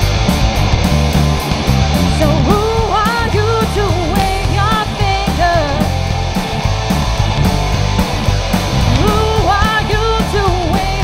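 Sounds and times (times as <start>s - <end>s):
live rock band playing: 0.0s - 11.0s
woman singing: 2.1s - 6.0s, 8.9s - 11.0s.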